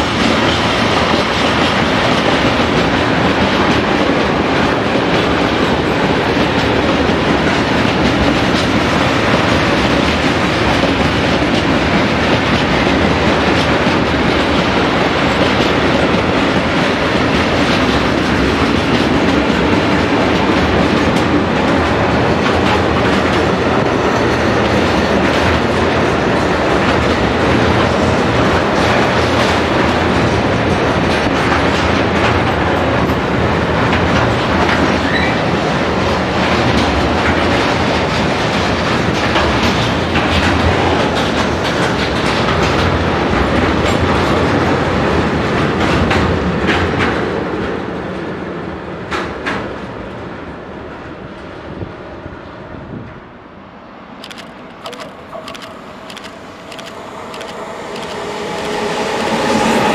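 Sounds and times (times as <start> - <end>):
wheels clacking over rail joints: 0.0 - 47.8
train wheels on rail: 0.0 - 59.9.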